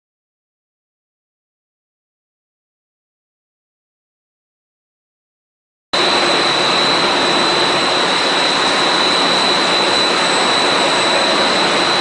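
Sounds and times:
high steady whine: 6.0s - 12.0s
loud steady machine noise: 6.0s - 12.0s.

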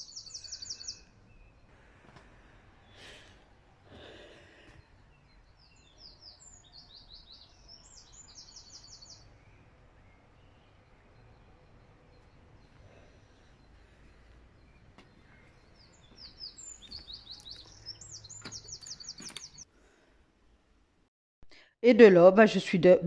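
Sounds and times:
outdoor background noise: 0.0s - 23.0s
songbird trilling: 5.2s - 11.5s, 14.6s - 19.6s.

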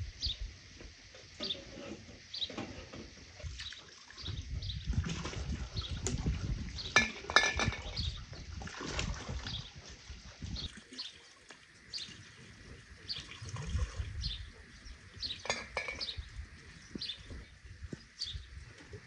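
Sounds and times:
water running and splashing: 3.2s - 19.0s
glass jars clinking: 6.9s - 8.0s, 15.4s - 16.2s
birds chirping faintly: 9.4s - 19.0s.

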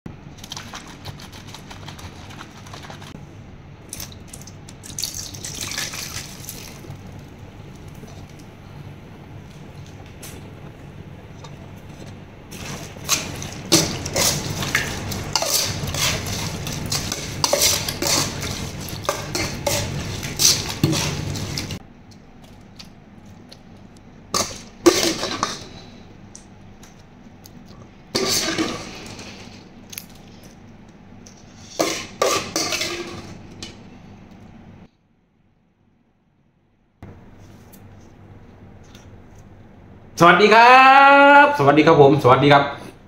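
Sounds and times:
spoon stirring wet meat in pot: 12.0s - 21.8s.

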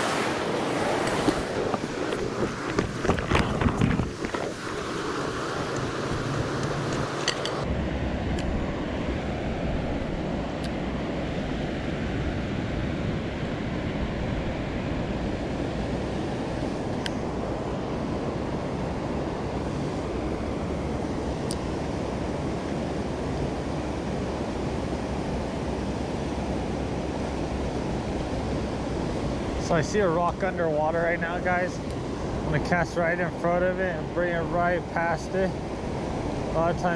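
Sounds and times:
river rushing over rocks: 0.0s - 7.7s.

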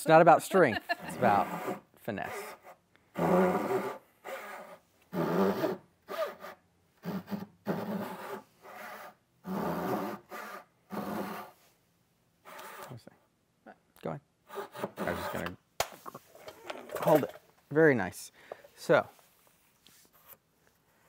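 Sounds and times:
handsaw cutting wood: 1.0s - 11.6s, 14.5s - 15.6s.

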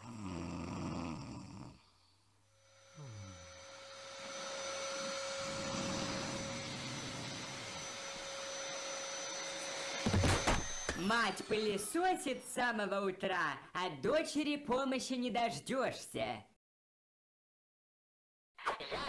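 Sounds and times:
man snoring: 0.0s - 7.9s
vacuum cleaner running: 2.6s - 12.8s.

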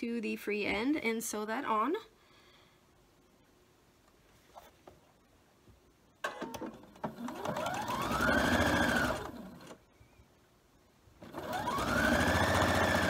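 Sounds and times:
electric sewing machine stitching: 6.4s - 9.8s, 11.2s - 13.0s.

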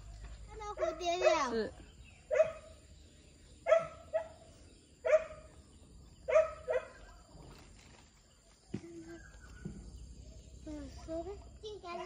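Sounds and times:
dog barking: 0.8s - 1.6s, 2.3s - 2.8s, 3.6s - 4.4s, 5.0s - 5.5s, 6.3s - 7.1s.

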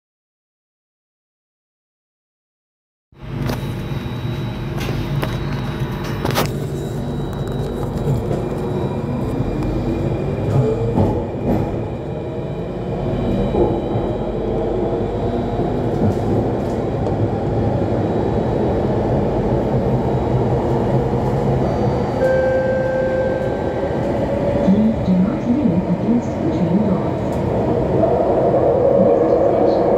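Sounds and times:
train wheels rumbling on rails: 3.3s - 29.9s
steady high tone: 21.9s - 25.0s.

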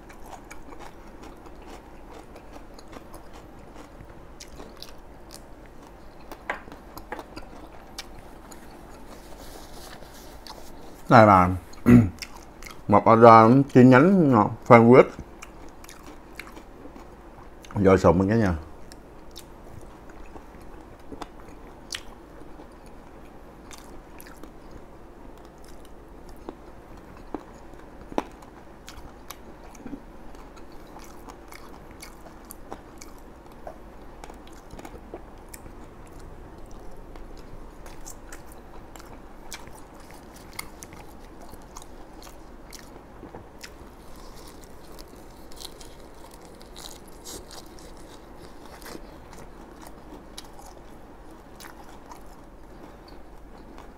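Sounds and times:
person chewing food: 0.0s - 12.9s, 15.1s - 17.8s, 18.8s - 53.9s.

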